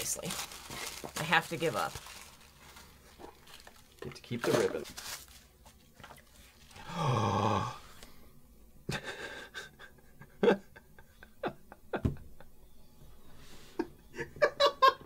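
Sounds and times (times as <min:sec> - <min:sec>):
person gasping in delight: 0:06.8 - 0:07.9.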